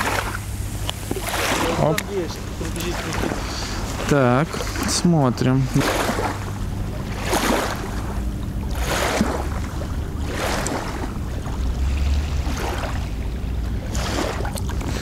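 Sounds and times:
steady low rumble: 0.0 - 15.0
water lapping: 0.0 - 15.0.

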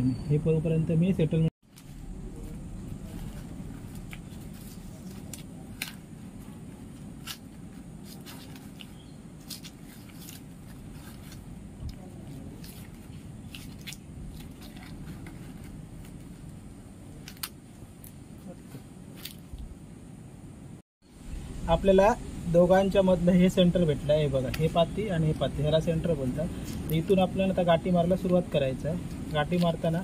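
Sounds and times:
steady low rumble: 0.3 - 30.0
palm leaves rustling and crackling: 1.6 - 19.7, 21.2 - 30.0.

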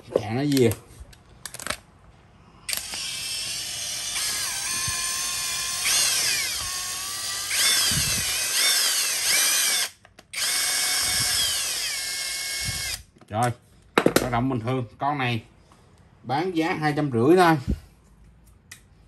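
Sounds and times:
cordless drill motor whining: 2.7 - 13.0.

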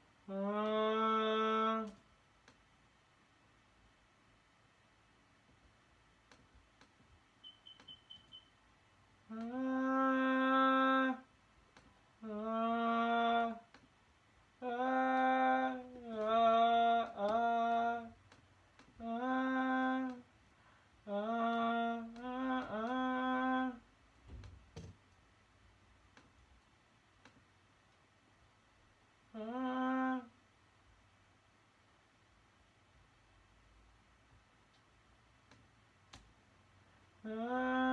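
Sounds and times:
person singing wordless melody: 0.0 - 2.6, 9.2 - 24.1, 29.2 - 30.7, 36.8 - 37.9
click: 1.8 - 2.7, 6.2 - 8.5, 11.7 - 12.0, 13.7 - 14.0, 15.9 - 16.4, 17.0 - 19.0, 21.5 - 23.1, 26.1 - 28.1, 34.7 - 36.4.

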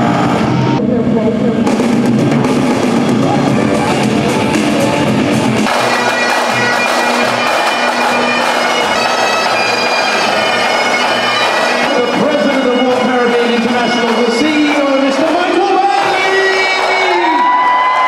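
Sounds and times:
loud show music: 0.0 - 18.0
pipe band drums: 1.6 - 18.0
bagpipes droning and playing: 3.4 - 17.6.

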